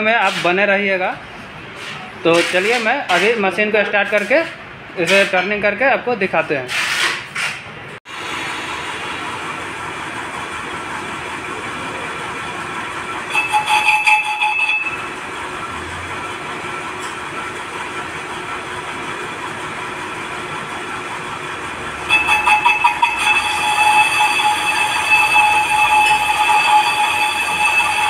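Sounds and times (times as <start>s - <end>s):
lathe running: 8.1s - 28.0s
ringing cutting squeal: 13.3s - 15.2s, 22.1s - 28.0s.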